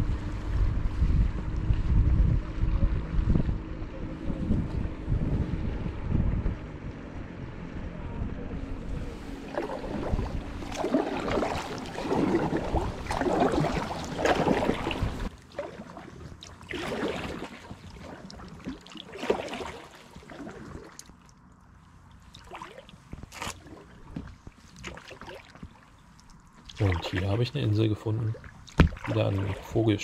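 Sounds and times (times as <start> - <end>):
paddle strokes splashing: 8.7 - 30.0
water trickling off paddle: 9.2 - 30.0.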